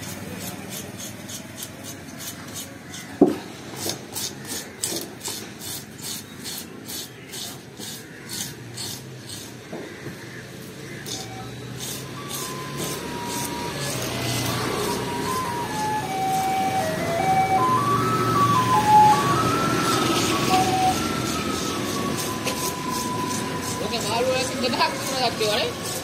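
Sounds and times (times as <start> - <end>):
fish scaler rasping: 0.0 - 3.2, 3.8 - 9.6, 10.8 - 26.0.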